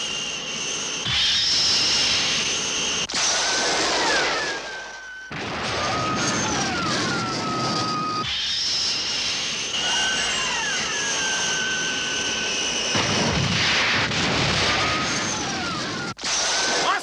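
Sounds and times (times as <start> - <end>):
jet-like roar with high whine: 0.0 - 17.0
short falling whistles: 3.4 - 13.3.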